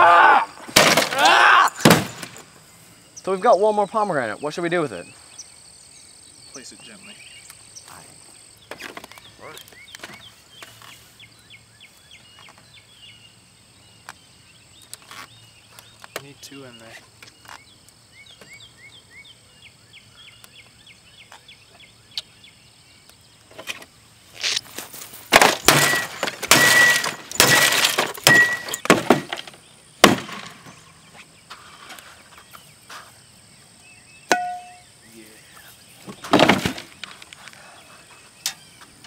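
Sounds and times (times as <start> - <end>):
fruit bursting: 0.6 - 2.4, 25.3 - 29.4, 30.0 - 30.6
sharp crack: 0.6 - 2.5, 24.4 - 30.8
glass breaking: 25.3 - 29.4.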